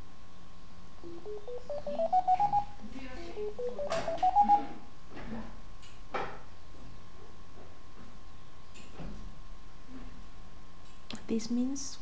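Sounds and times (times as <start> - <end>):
rising electronic beeps: 1.0 - 2.8, 3.4 - 4.8.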